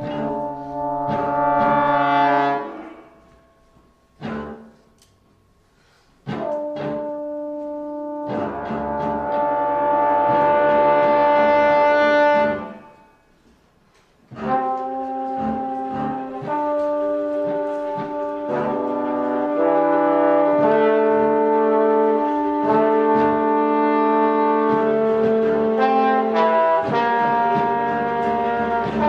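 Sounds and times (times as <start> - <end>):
held brass chord: 0.0 - 4.9, 6.2 - 13.3, 14.3 - 29.0
steady low pulse: 0.0 - 4.9
trombone duet with band: 0.0 - 4.9, 6.2 - 13.1, 14.3 - 29.0.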